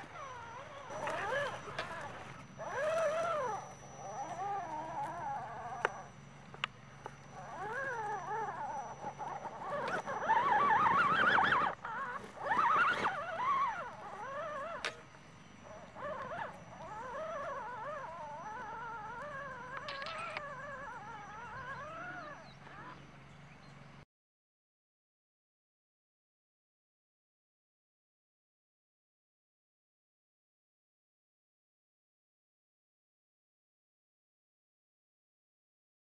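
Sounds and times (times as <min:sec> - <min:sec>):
rc car motor whining: 0:00.0 - 0:23.0
sharp clicks: 0:19.2 - 0:20.5.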